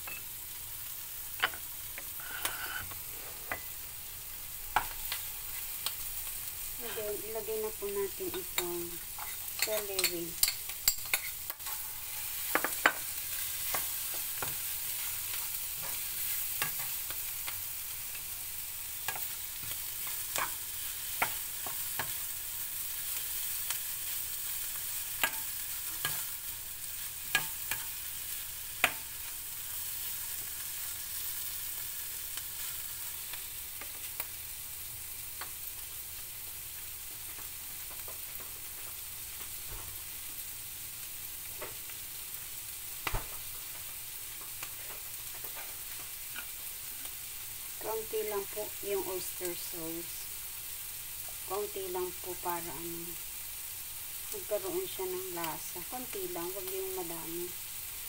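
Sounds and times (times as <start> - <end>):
food sizzling in a frying pan: 0.0 - 58.0
spatula scraping a pan: 2.2 - 3.7, 9.1 - 17.3.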